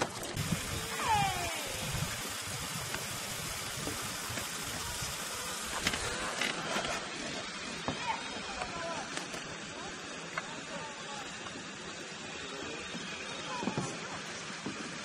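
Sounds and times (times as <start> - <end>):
wind: 0.0 - 15.0.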